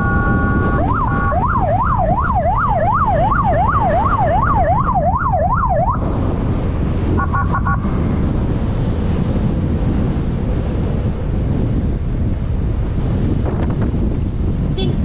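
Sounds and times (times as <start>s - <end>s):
short electronic beeps: 0.0s - 0.8s
police siren yelping: 0.0s - 6.3s
wind rush over microphone: 0.0s - 15.0s.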